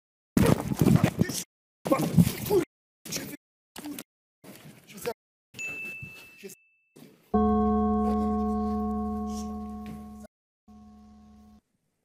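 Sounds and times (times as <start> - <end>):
gong ringing: 7.4 - 11.6.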